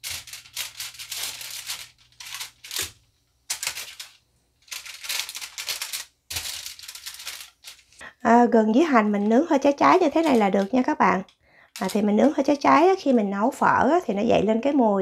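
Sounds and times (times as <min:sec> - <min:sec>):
aluminium foil crinkling: 0:00.0 - 0:08.0, 0:09.0 - 0:11.0, 0:11.7 - 0:12.6.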